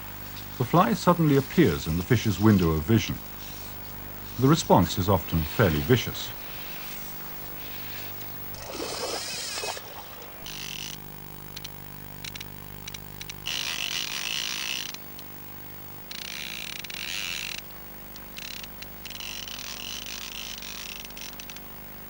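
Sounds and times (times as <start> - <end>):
fly reel ratchet buzzing: 7.6 - 11.0, 12.2 - 15.2, 16.0 - 17.7, 18.3 - 21.6
fish splash: 8.5 - 11.0
single reel clicks: 10.5 - 15.3, 16.1 - 21.8.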